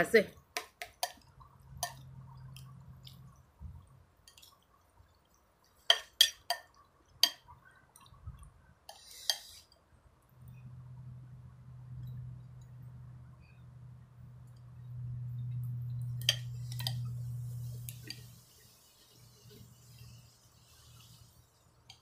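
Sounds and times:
faint low hum: 9.8s - 22.0s.

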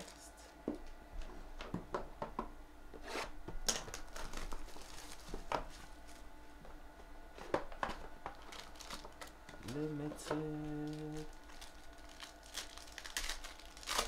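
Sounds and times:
plastic wrap crinkling: 3.6s - 6.2s, 7.7s - 14.0s.

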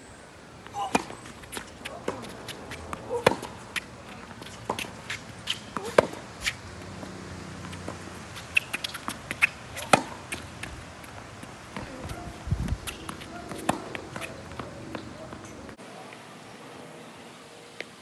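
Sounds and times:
tennis balls bouncing on court: 0.6s - 15.8s
tennis balls struck by rackets: 0.6s - 15.8s.

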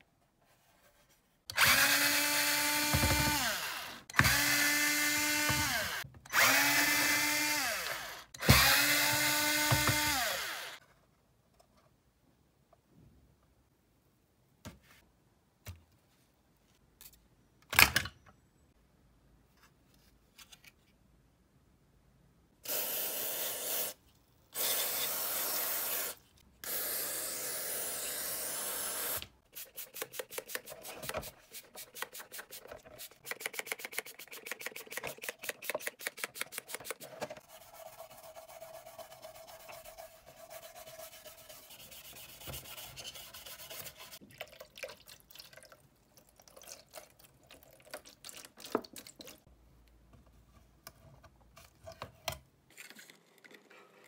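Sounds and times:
rubbing and scrubbing plastic: 29.6s - 44.2s.

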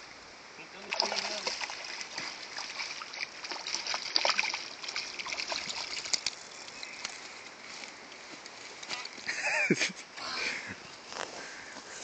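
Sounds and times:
fish splashing in shallow water: 0.8s - 7.1s.

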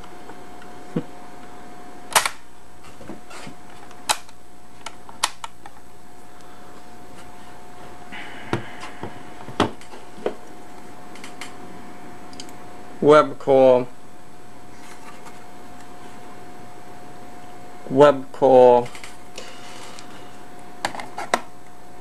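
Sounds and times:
tape recorder handling clicks: 3.8s - 5.8s.

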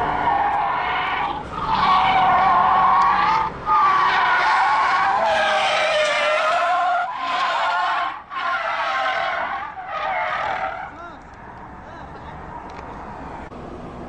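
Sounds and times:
car tyres squealing: 0.0s - 13.5s.

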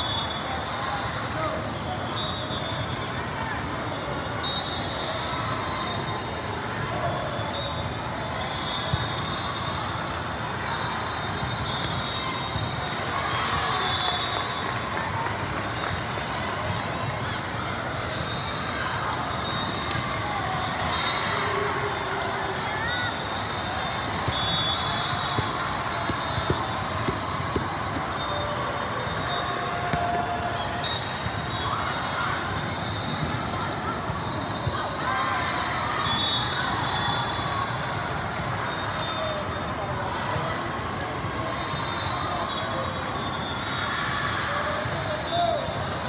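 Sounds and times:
din of crowded hall: 0.0s - 46.0s
referee whistle blasts: 2.0s - 3.0s, 4.0s - 6.2s, 7.4s - 9.9s, 11.0s - 14.7s, 18.2s - 21.6s, 22.9s - 27.2s, 28.0s - 33.3s, 35.8s - 37.6s, 41.6s - 44.1s
volleyball hits: 24.2s - 28.2s.

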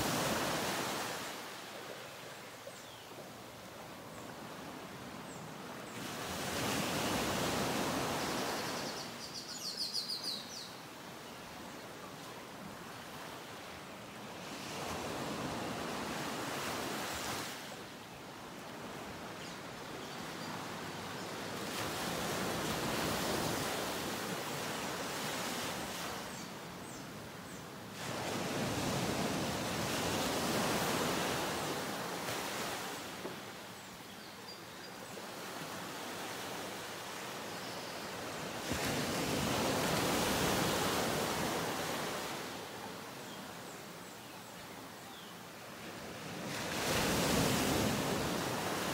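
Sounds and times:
ocean surf washing ashore: 0.0s - 2.2s.

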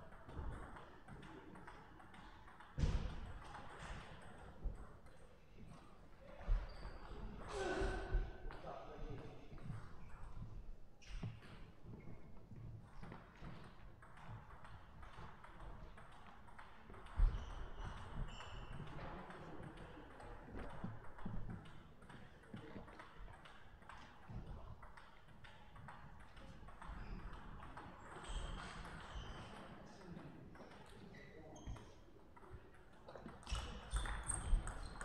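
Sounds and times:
table tennis balls clicking: 12.8s - 29.8s, 32.3s - 35.0s.

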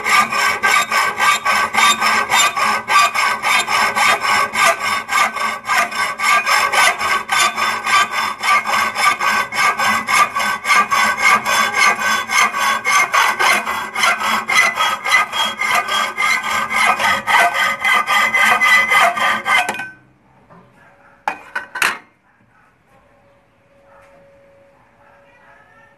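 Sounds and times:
hacksaw cutting steel: 0.0s - 20.0s.

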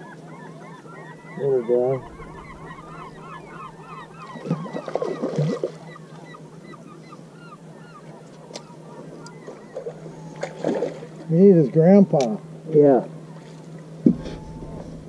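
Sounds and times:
birds calling: 0.0s - 11.5s, 13.2s - 15.0s
fish thrashing and splashing: 2.4s - 5.9s.

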